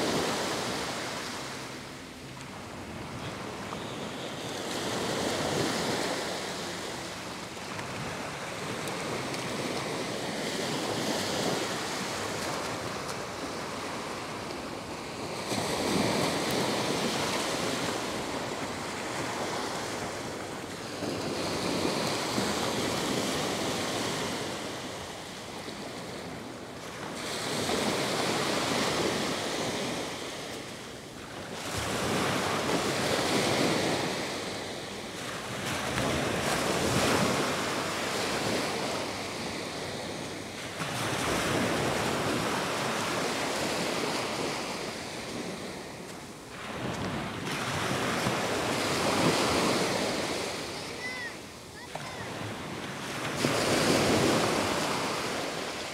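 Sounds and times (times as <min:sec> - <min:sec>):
small waves breaking on sand: 0:00.0 - 0:55.9.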